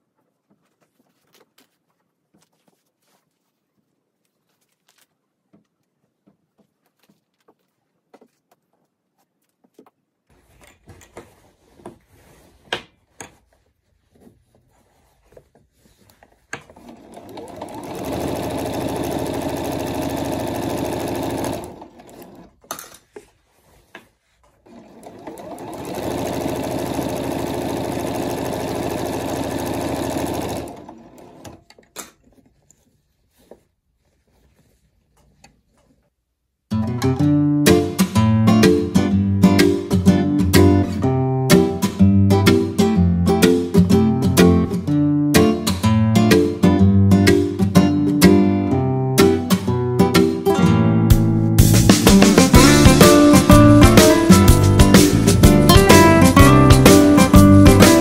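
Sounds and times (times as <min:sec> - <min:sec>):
sewing machine stitching: 0:16.5 - 0:22.7, 0:24.5 - 0:32.4.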